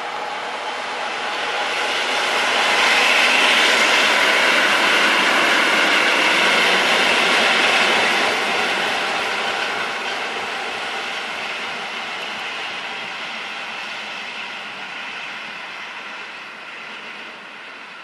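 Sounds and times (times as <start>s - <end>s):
diesel locomotive engine: 0.0s - 18.0s.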